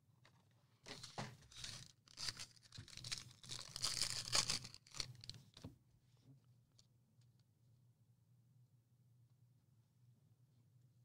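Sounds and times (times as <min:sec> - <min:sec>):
plastic wrapping tearing: 0:01.0 - 0:05.4.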